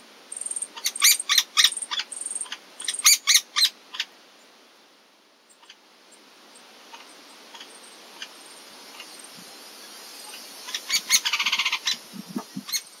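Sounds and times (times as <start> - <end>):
woodpecker calls: 0.3 - 4.1, 6.9 - 9.3, 10.3 - 13.0.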